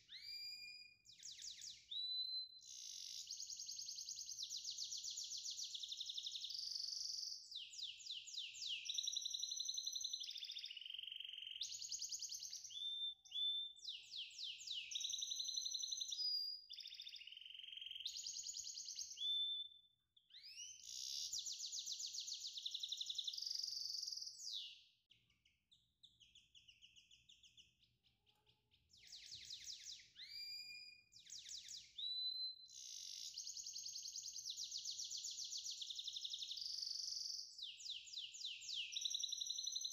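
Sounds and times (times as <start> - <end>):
songbird trilling and whistling: 0.0 - 28.0, 28.8 - 39.9.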